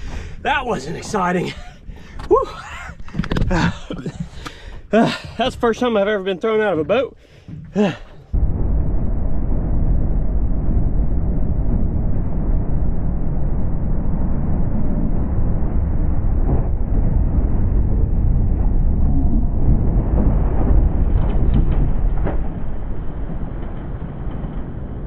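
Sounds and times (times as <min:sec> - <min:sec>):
outboard boat engine: 0:00.0 - 0:08.4
wind rushing: 0:08.2 - 0:25.0.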